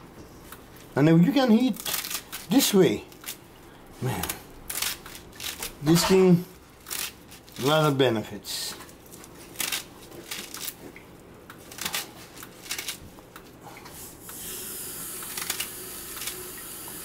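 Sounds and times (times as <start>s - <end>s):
steady hiss: 13.9s - 17.0s.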